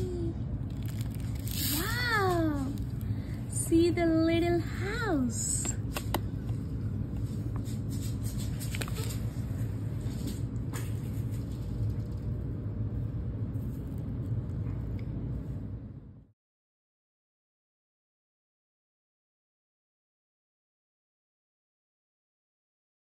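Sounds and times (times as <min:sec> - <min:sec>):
steady low rumble: 0:00.0 - 0:16.3.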